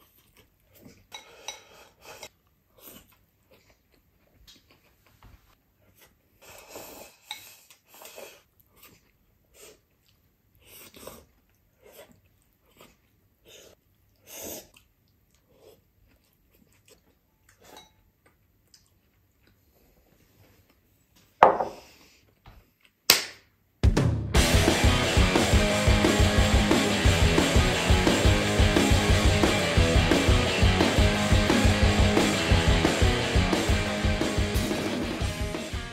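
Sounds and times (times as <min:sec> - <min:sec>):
person chewing: 0:00.0 - 0:21.0, 0:21.8 - 0:23.1
person slurping from a bowl: 0:05.9 - 0:17.9
music: 0:23.8 - 0:35.9.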